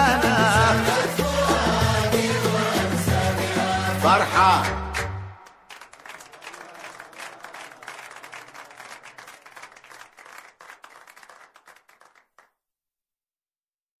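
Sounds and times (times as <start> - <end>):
audience applause: 5.5 - 12.5.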